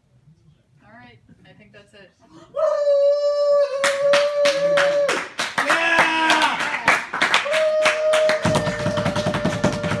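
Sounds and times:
people cheering: 2.6 - 10.0
hands clapping in rhythm: 3.8 - 10.0.

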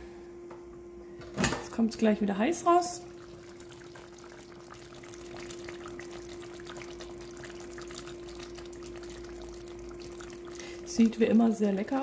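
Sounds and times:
steady hum: 0.0 - 12.0
food bubbling and crackling: 2.5 - 12.0.

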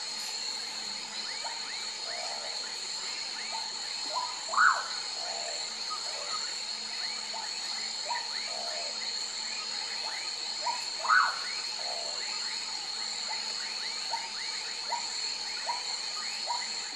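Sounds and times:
frog calls: 3.4 - 6.4, 10.6 - 12.2.

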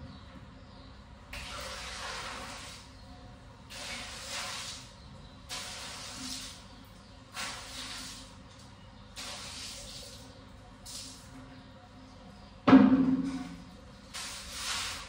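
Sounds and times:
water splashing on tiled floor: 1.3 - 2.9, 3.7 - 4.9, 5.5 - 11.3, 14.1 - 15.0.

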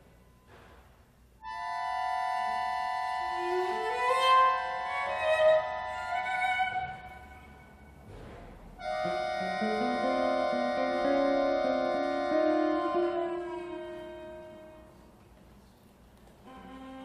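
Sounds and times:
cello guitar and accordion trio: 1.4 - 7.3, 8.8 - 15.0.

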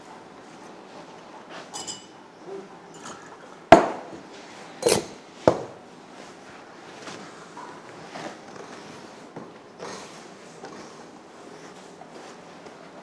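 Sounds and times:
plates and cups clattering: 1.7 - 2.2, 2.9 - 4.1, 4.8 - 5.8.

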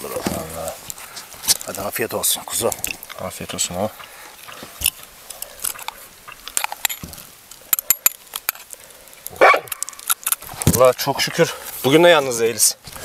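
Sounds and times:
biting and chewing: 0.9 - 10.9
short sharp clicks and crackles: 4.0 - 11.0.

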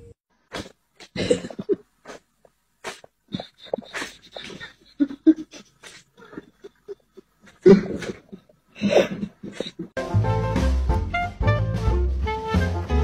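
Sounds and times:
stifled breathy laughter: 1.0 - 2.2, 2.8 - 10.0.

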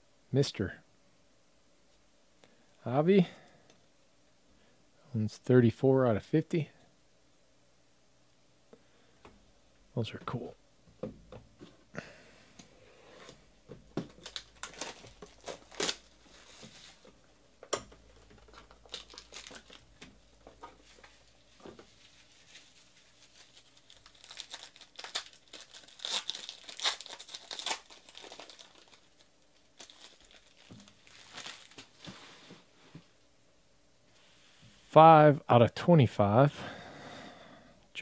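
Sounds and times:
foil card pack tearing and crinkling: 14.0 - 17.0, 18.4 - 19.8, 22.4 - 32.1.

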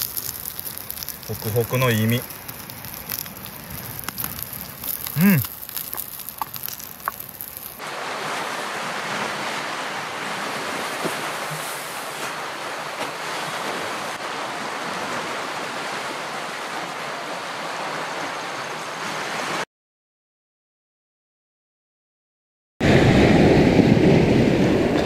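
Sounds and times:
waves breaking on rocky shore: 0.0 - 19.6.

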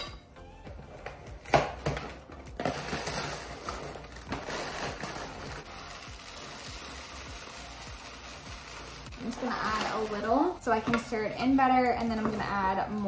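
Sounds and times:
plastic liner crinkling: 2.6 - 10.4
cereal pouring: 2.7 - 10.2.

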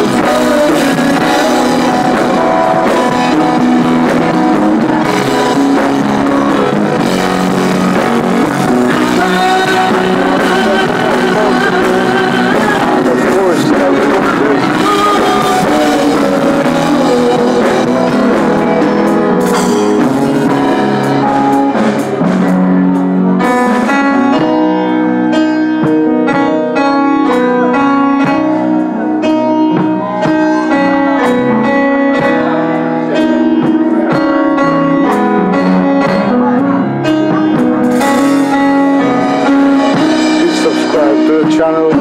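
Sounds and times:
drums: 0.0 - 42.0
electric guitar: 0.0 - 42.0
keyboard: 0.0 - 42.0.

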